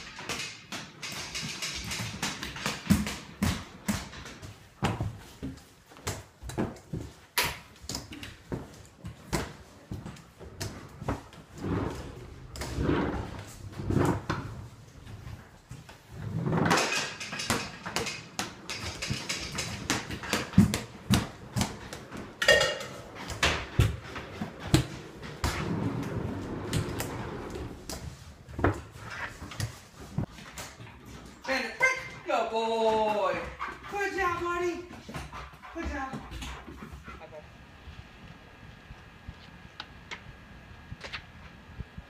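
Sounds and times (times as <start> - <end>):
cupboard and cookware clanks: 16.4 - 27.7.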